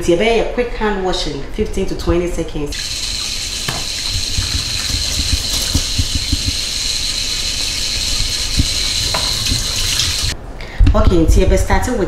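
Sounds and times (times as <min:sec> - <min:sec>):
faucet running into sink: 0:02.7 - 0:10.4
hands washing under water: 0:02.7 - 0:10.4.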